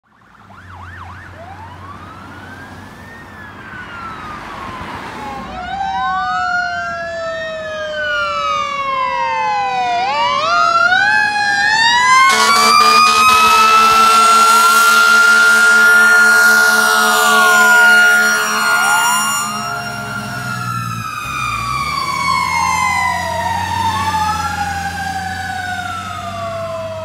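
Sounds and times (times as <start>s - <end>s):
fire engine sirens wailing: 0.0s - 27.0s
low horn blaring in pulses: 12.1s - 22.3s.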